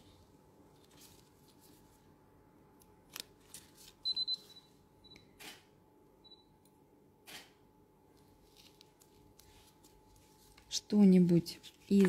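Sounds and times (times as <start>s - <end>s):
gloved hands rustling: 8.2s - 10.8s.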